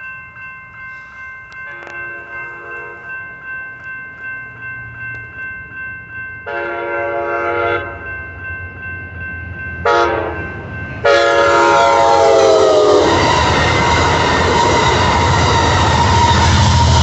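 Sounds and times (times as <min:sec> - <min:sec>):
crossing bell ringing: 0:00.0 - 0:17.0
train cars rumbling and clacking: 0:00.0 - 0:17.0
train horn blasts: 0:01.7 - 0:03.1, 0:06.5 - 0:08.1, 0:09.8 - 0:17.0.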